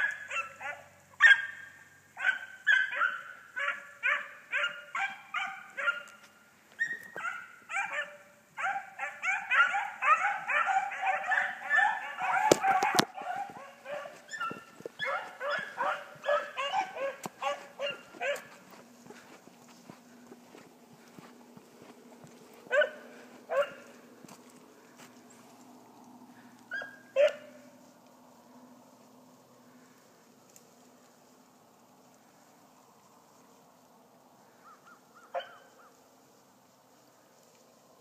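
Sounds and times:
hounds baying: 0.0s - 25.6s, 26.3s - 27.9s, 34.6s - 36.0s.

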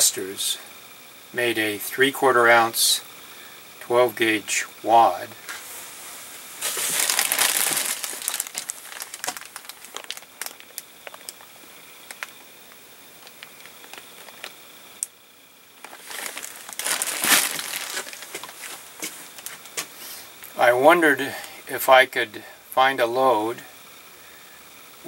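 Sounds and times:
plastic bag crinkling: 6.6s - 12.5s, 13.2s - 14.7s, 15.8s - 19.9s.

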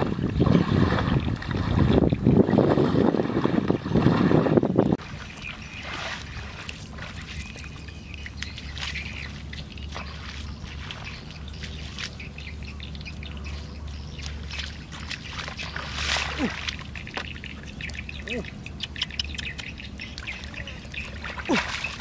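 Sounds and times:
wind rumble on microphone: 0.0s - 16.2s
faint bird calls: 7.2s - 22.0s.

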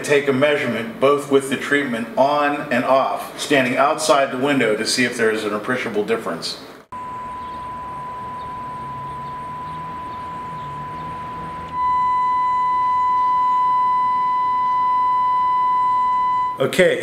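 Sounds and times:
steady test tone from loudspeaker: 6.9s - 17.0s.

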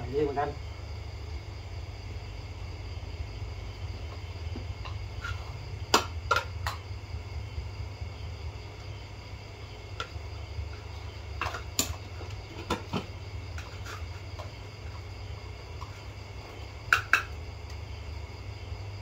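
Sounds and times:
low hum: 0.6s - 12.2s.

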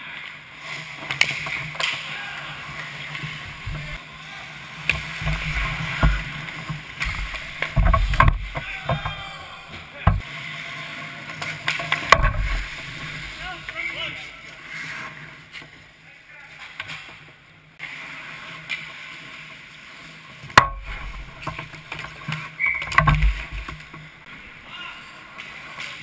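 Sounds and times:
hockey sticks and puck clacking: 0.9s - 4.0s, 4.8s - 10.3s, 11.3s - 14.0s, 20.5s - 24.0s.

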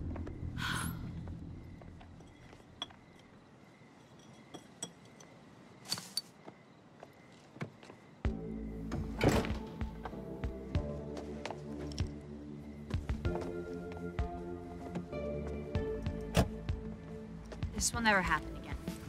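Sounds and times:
background music: 0.0s - 1.8s, 8.2s - 19.0s
faint clicks and clinks: 4.0s - 5.4s.

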